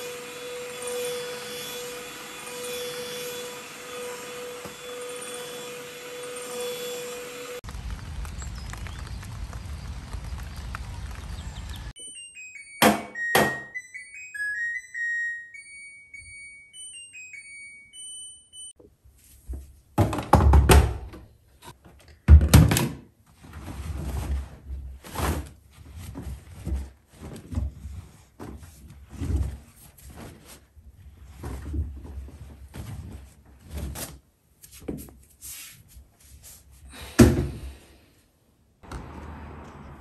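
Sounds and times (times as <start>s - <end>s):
washing machine beeping melody: 12.0s - 18.8s.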